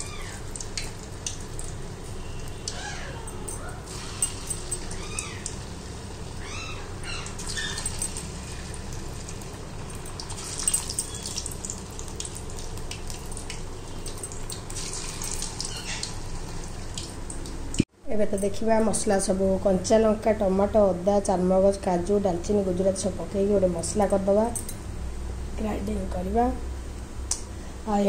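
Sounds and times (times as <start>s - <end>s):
oil sizzling and popping: 0.0s - 2.8s, 3.9s - 6.4s, 7.2s - 17.9s.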